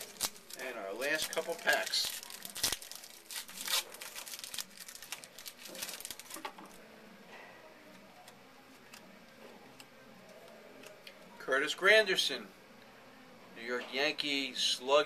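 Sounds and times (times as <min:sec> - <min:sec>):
card wrapper ripping and crinkling: 0:00.0 - 0:06.8
faint handling sounds: 0:00.0 - 0:11.4.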